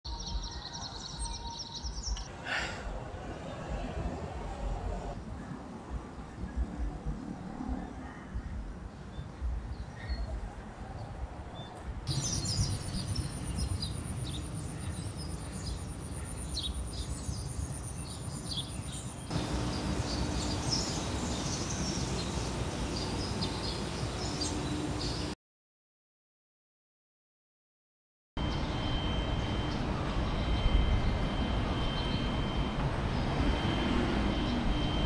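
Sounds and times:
birds chirping: 0.1s - 5.4s, 7.8s - 25.4s
steady low rumble: 2.2s - 9.7s
thin high whine: 28.4s - 35.0s.

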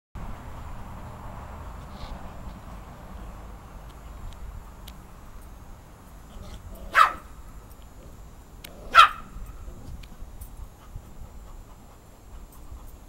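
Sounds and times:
dog barking: 6.9s - 7.3s, 8.9s - 9.3s.

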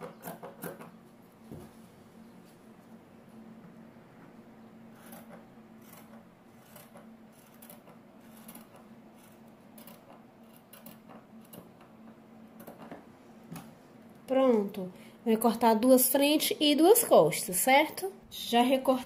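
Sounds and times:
faint steady hum: 0.0s - 19.0s
scissors snipping fabric: 5.0s - 11.7s.

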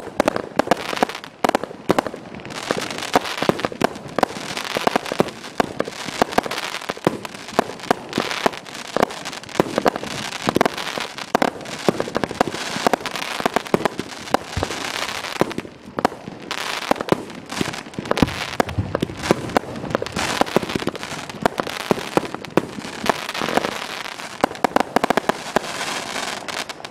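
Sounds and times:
firework crackling: 0.0s - 26.9s
firework aerial bangs: 11.4s - 26.9s
firework launch thumps: 14.5s - 14.8s.

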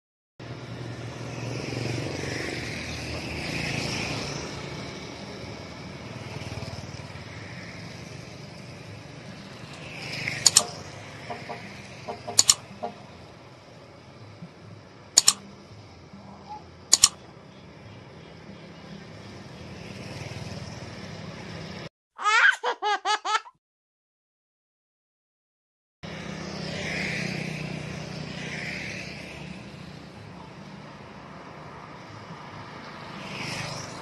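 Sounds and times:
traffic on wet road: 0.4s - 17.2s, 18.6s - 21.9s, 26.1s - 34.0s
motorbikes passing: 0.4s - 21.9s, 26.0s - 34.0s
mouse click sound effects: 10.4s - 10.8s, 12.2s - 12.6s, 15.2s - 15.4s, 16.9s - 17.2s.

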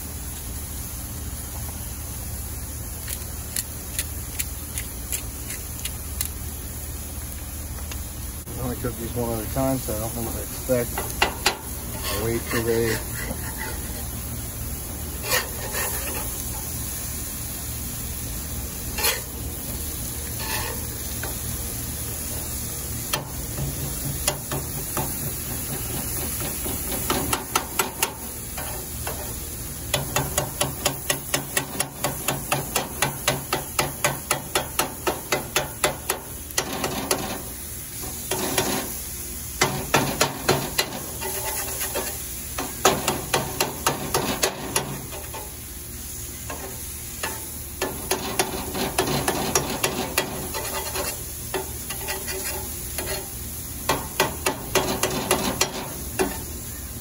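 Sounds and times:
beef sizzling on griddle: 0.0s - 57.0s
spatula scraping on iron: 11.0s - 14.1s, 15.1s - 16.7s, 18.9s - 19.4s, 20.2s - 20.9s, 39.6s - 42.3s, 46.5s - 53.4s.

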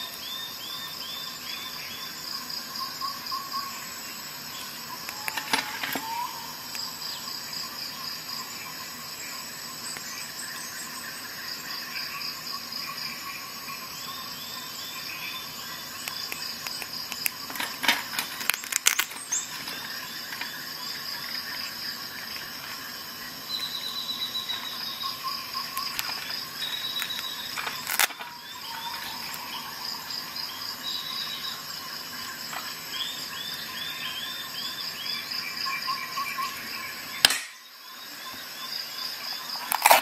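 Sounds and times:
multi-tools and keyring clicking: 16.0s - 20.5s.

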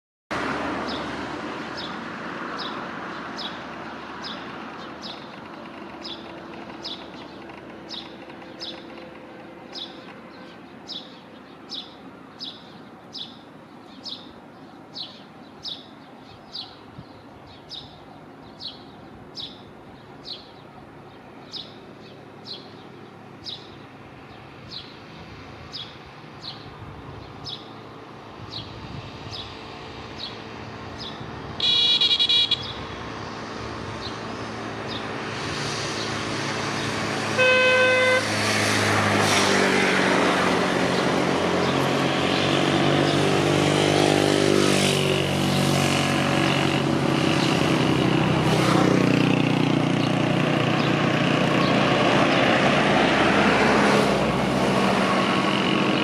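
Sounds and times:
vehicle engine running loudly: 0.4s - 11.5s, 22.0s - 56.0s
bird chirping: 4.2s - 25.0s, 31.0s - 32.8s
vehicle horn toots: 31.6s - 32.8s, 37.3s - 38.3s.

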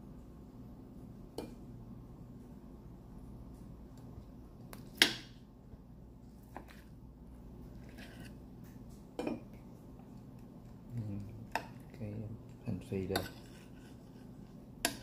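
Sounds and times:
low steady hum: 0.0s - 15.0s
fork scraping plate: 7.8s - 8.4s, 13.0s - 15.0s.

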